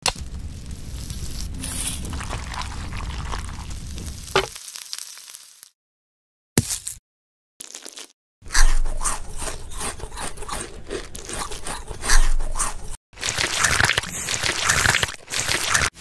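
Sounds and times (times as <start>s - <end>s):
crab shell crunching: 2.0s - 5.2s
scraping rasp: 8.5s - 13.0s.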